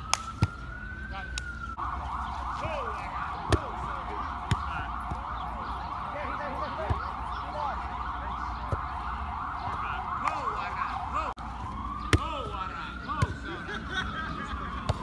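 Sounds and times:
emergency siren in yelp mode: 0:00.0 - 0:15.0
volleyball being hit: 0:03.4 - 0:05.2.

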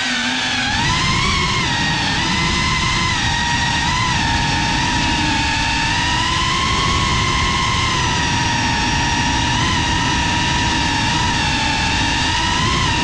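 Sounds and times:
quadcopter motors whining: 0:00.0 - 0:13.0
low rushing noise: 0:00.4 - 0:13.0.

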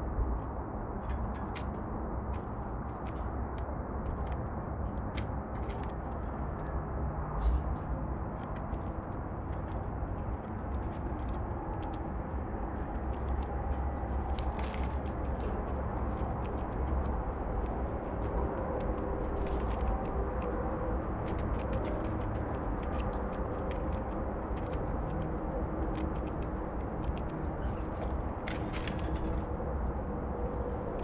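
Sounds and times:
bird pecking clicks and taps: 0:08.3 - 0:29.6.

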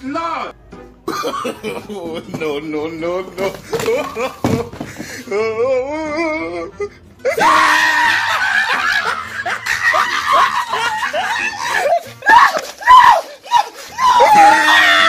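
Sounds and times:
man wailing: 0:03.4 - 0:15.0
man screaming and crying: 0:03.5 - 0:15.0.

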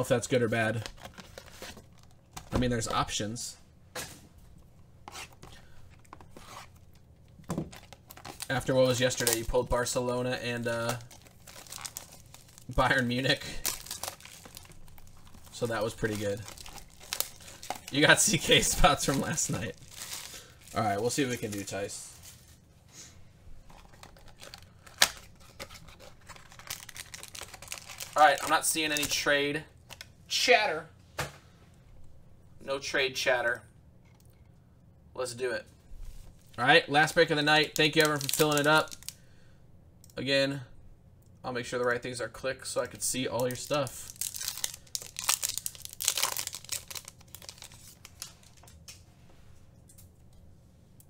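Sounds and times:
foil wrapper tearing and crinkling: 0:07.7 - 0:22.3, 0:23.7 - 0:29.3, 0:37.6 - 0:39.2, 0:43.4 - 0:48.8.

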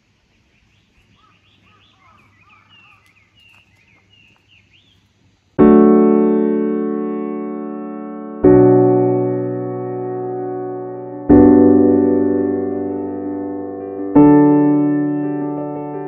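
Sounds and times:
faint birdsong chirps and whistles: 0:00.0 - 0:05.5
piano chord: 0:05.6 - 0:16.0.

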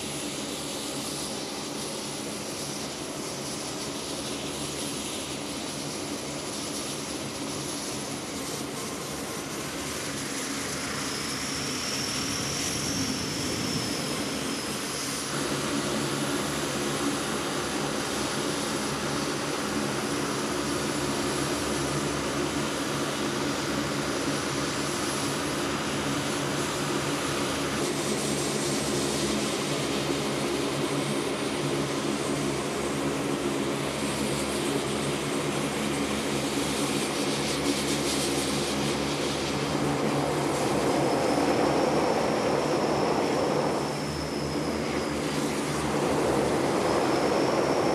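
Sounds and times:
high engine whine: 0:00.0 - 0:47.9
turboprop engines droning: 0:00.0 - 0:47.9.

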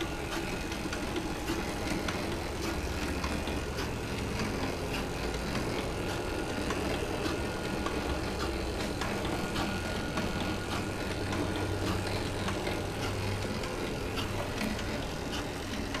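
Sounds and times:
cutting machine motor hum: 0:00.0 - 0:16.0.

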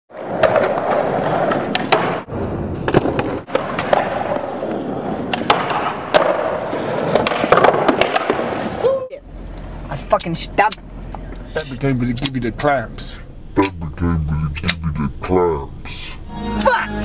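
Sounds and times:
skateboard clacking on ground: 0:00.1 - 0:08.8
skateboard wheels rolling on concrete: 0:00.1 - 0:10.2.

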